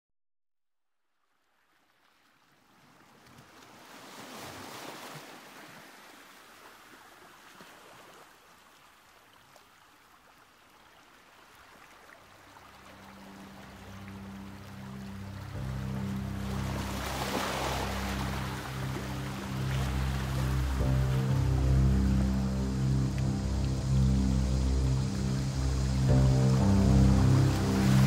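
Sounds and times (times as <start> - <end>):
soft rushing wash: 11.2 - 28.0
low sustained notes: 12.4 - 28.0.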